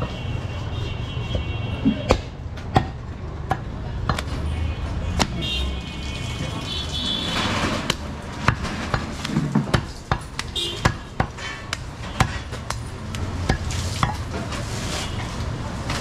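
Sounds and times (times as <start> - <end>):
cleaver chopping meat and bone: 2.0 - 4.3, 5.2 - 5.4, 7.8 - 14.2.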